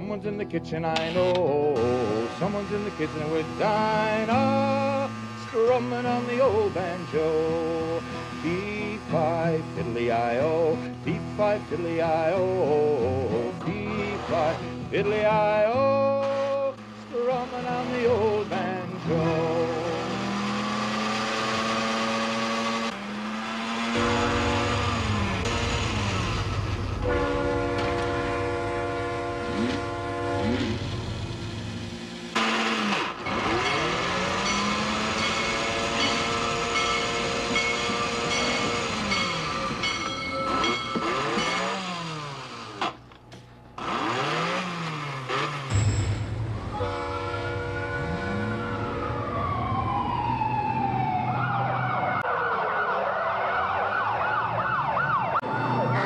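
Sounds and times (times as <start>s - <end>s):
electric train horn blasts: 1.8s - 9.8s, 23.0s - 31.5s, 32.4s - 42.7s, 46.5s - 48.7s
toy train motor whine: 1.8s - 12.8s, 16.2s - 26.6s, 32.3s - 43.0s.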